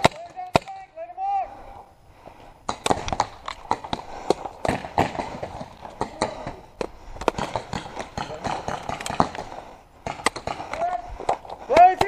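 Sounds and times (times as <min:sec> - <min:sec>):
paintball markers firing: 0:02.7 - 0:12.0.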